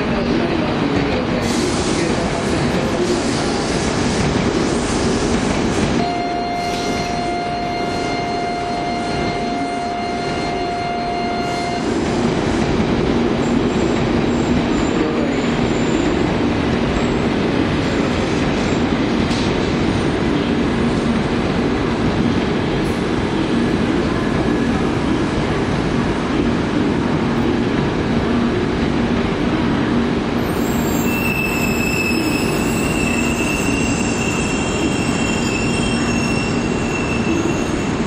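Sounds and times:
steady high tone: 0:06.0 - 0:12.0.

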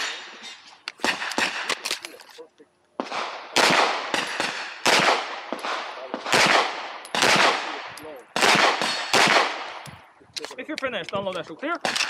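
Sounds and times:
pistol shots with echo: 0:01.0 - 0:01.8, 0:03.0 - 0:09.9, 0:11.8 - 0:12.0.

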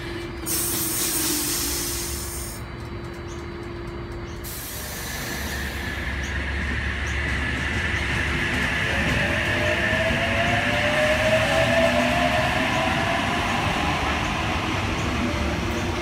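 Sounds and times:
electric train passing: 0:00.0 - 0:16.0
train hum: 0:00.0 - 0:16.0.

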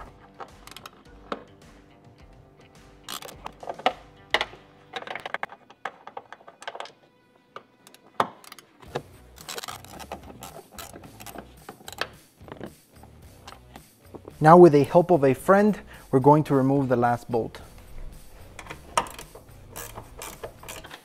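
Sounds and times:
ratcheting wrench clicking: 0:00.4 - 0:01.0, 0:03.1 - 0:05.6, 0:07.8 - 0:13.9, 0:17.8 - 0:21.0.

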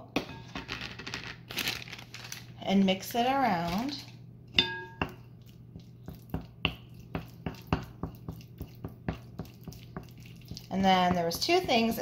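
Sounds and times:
wooden spoon mashing in bowl: 0:03.6 - 0:12.0
bowl ringing: 0:04.5 - 0:05.2.

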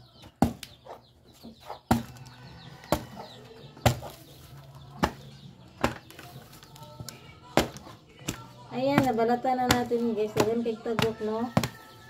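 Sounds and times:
knife chopping fruit rind: 0:05.0 - 0:12.0.

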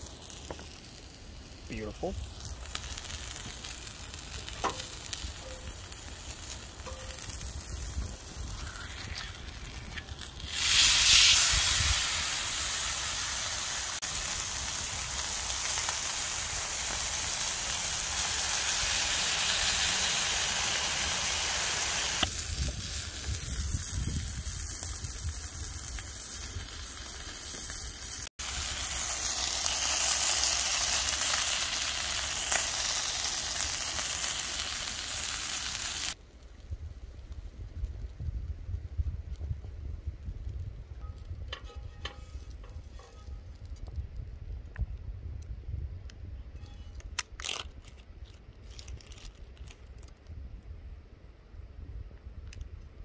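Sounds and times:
food sizzling in a skillet: 0:00.0 - 0:36.2.

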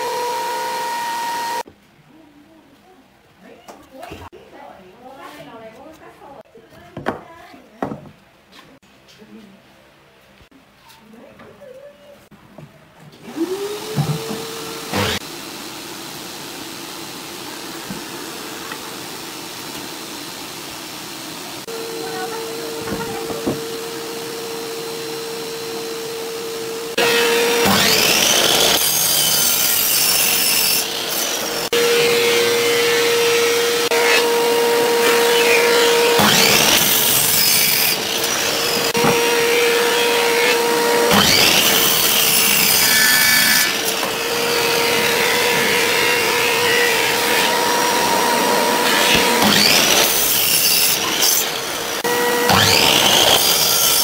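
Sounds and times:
miter saw cutting wood: 0:00.0 - 0:01.7, 0:13.2 - 0:54.0.

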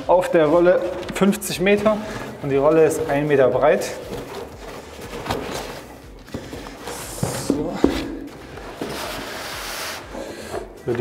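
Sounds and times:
wallpaper roll rustling in box: 0:02.9 - 0:10.2.

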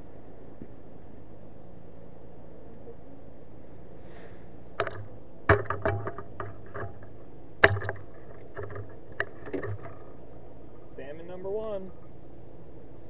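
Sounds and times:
steady low hum: 0:00.0 - 0:13.0
sharp knocks in a boat: 0:04.8 - 0:10.2.

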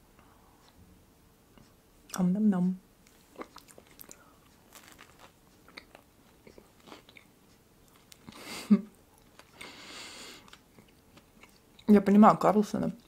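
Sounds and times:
chewing soft bread: 0:03.0 - 0:12.1.

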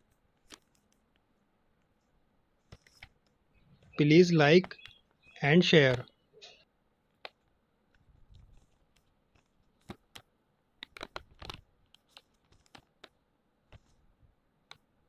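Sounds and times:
paper pieces clicking and tapping: 0:02.7 - 0:03.4, 0:08.6 - 0:14.0.

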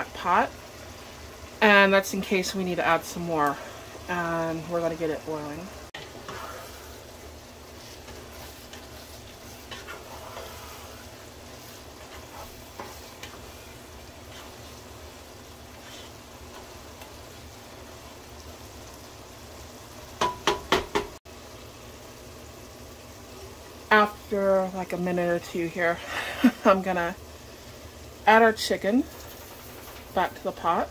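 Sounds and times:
rice boiling in a pot: 0:00.0 - 0:30.9
spoon stirring and scraping: 0:06.0 - 0:17.2.

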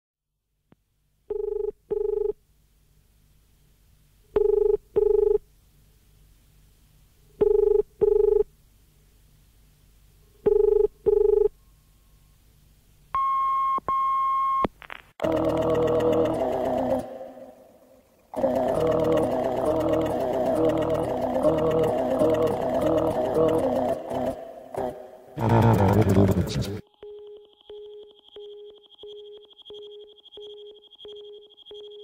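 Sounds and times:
telephone ringback tone: 0:04.4 - 0:05.4, 0:10.5 - 0:11.5, 0:15.2 - 0:16.7
high-pitched steady beeps: 0:15.2 - 0:16.9, 0:26.8 - 0:32.0.

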